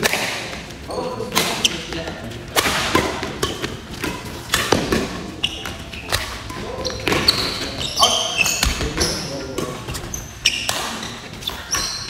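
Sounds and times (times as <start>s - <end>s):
rackets striking shuttlecock: 2.5s - 11.9s.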